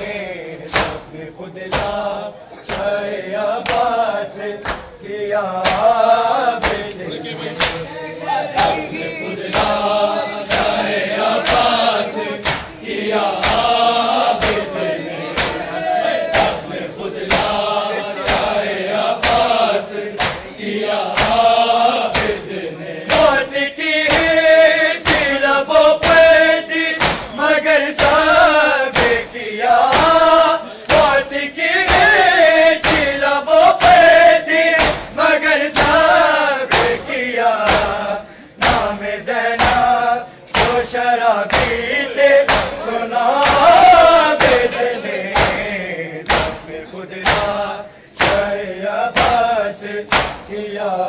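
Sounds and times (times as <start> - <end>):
men chanting a lament: 0.0 - 51.0
hands slapping chests: 0.7 - 1.1, 2.6 - 5.0, 5.6 - 6.0, 6.6 - 6.9, 7.6 - 7.8, 9.5 - 9.9, 10.5 - 14.7, 15.3 - 15.6, 17.3 - 17.6, 18.2 - 18.6, 19.2 - 21.5, 22.1 - 22.4, 26.0 - 26.3, 27.0 - 32.2, 32.8 - 33.2, 34.8 - 37.0, 37.6 - 39.0, 39.6 - 44.7, 45.4 - 50.5.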